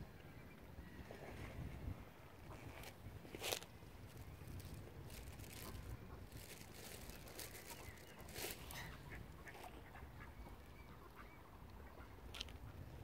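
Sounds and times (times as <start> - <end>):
rustling: 2.6 - 9.0
ducks quacking faintly: 7.4 - 12.9.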